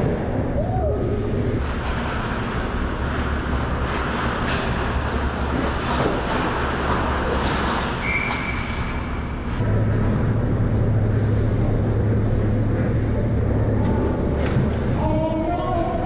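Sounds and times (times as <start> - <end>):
low rumble: 8.6 - 16.0.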